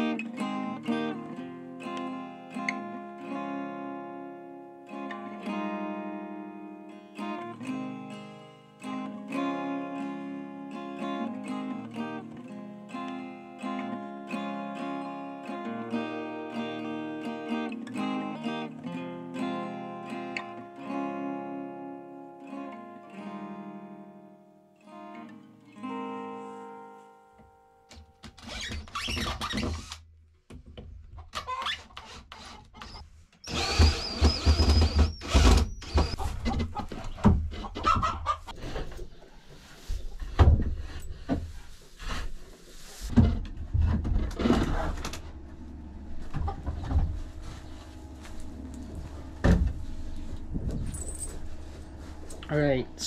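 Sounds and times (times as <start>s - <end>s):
acoustic guitar music: 0.0s - 29.6s, 33.8s - 53.0s
chickens clucking: 36.1s - 39.5s, 46.1s - 47.9s.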